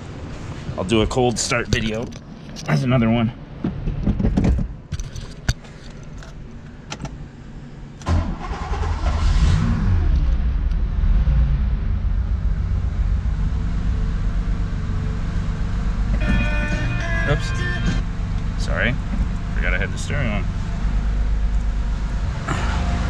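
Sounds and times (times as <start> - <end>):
car engine starting and idling: 6.0 - 23.0.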